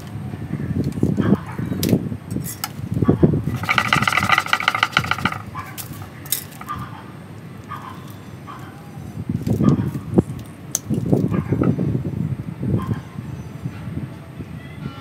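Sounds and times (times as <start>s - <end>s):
knocks and sharp clicks: 3.5s - 6.8s.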